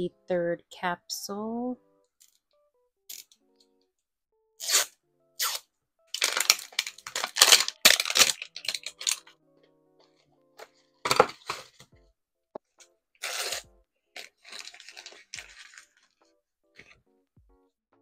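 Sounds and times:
crinkly wrapper tearing: 0:04.6 - 0:09.3, 0:13.2 - 0:16.2.

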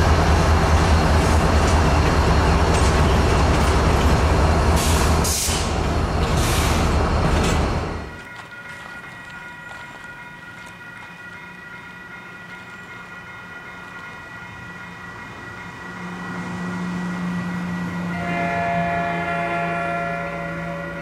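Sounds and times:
train rumble: 0:00.0 - 0:21.0
locomotive horn chord: 0:16.0 - 0:21.0.

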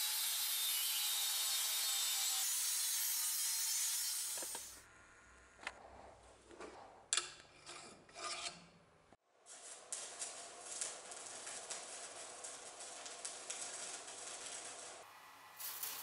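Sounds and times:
steel scraping strokes: 0:07.6 - 0:08.7
arc welding crackle: 0:09.3 - 0:16.0.

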